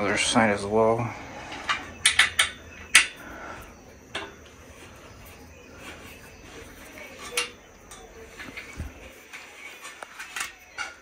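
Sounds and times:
soft handling: 0:03.0 - 0:11.0.

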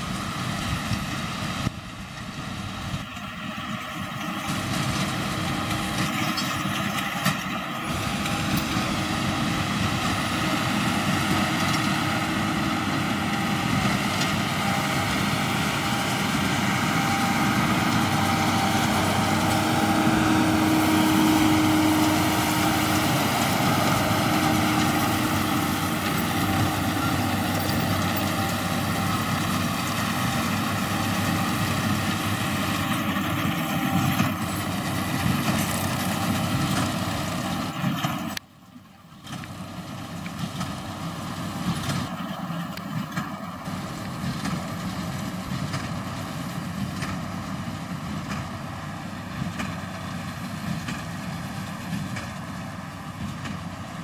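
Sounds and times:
baler machinery running: 0:00.0 - 0:54.0
tractor engine running under load: 0:00.0 - 0:54.0.

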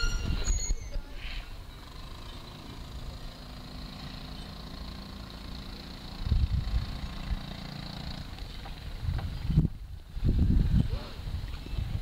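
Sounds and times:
wind rumbling on microphone: 0:00.0 - 0:01.7, 0:06.2 - 0:07.6, 0:08.2 - 0:12.0.

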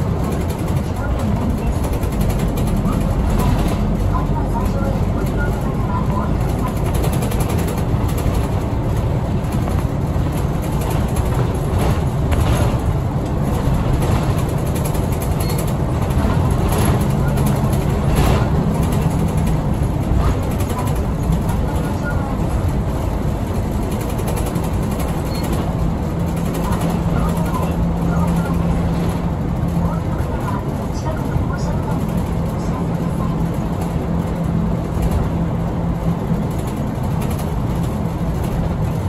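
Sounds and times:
bus diesel engine running: 0:00.0 - 0:39.0
tyre and road noise: 0:00.0 - 0:39.0.

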